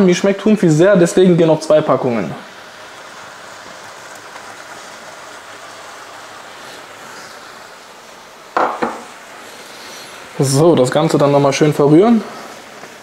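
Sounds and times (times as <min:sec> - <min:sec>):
sauce sizzling in a frying pan: 0:00.0 - 0:13.0.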